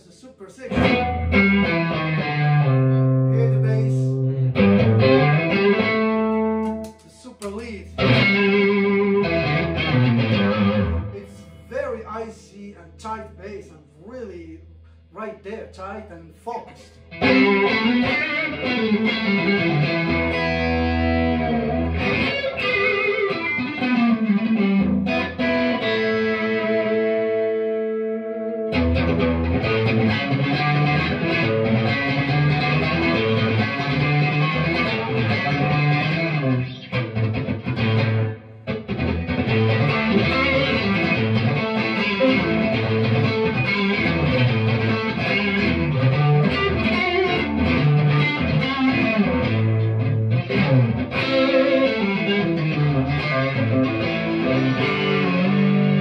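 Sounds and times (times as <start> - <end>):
overdriven electric guitar: 0.7 - 11.6, 16.8 - 56.0.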